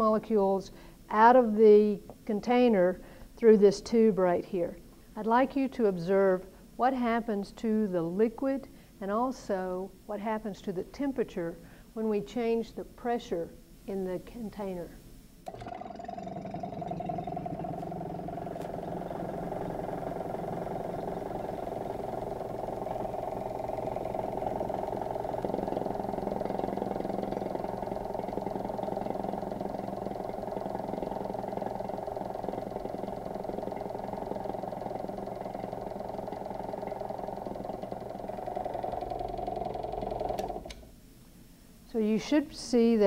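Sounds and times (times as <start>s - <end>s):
vacuum pump humming: 15.4s - 41.0s.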